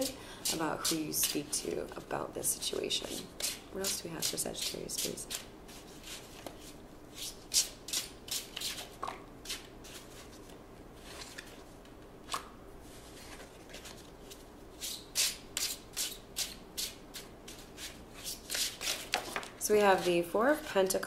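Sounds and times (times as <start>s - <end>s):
cards being shuffled: 17.2s - 19.6s.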